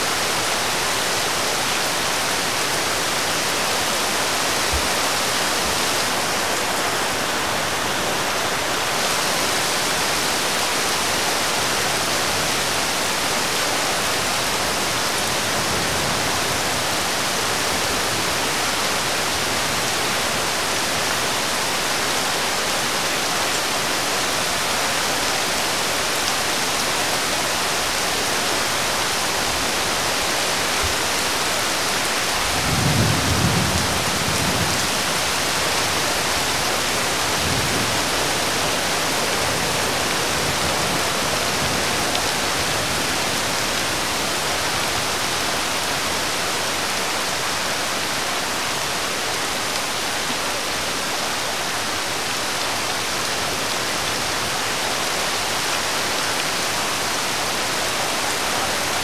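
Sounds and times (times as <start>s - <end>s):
heavy rain on pavement: 0.0s - 59.0s.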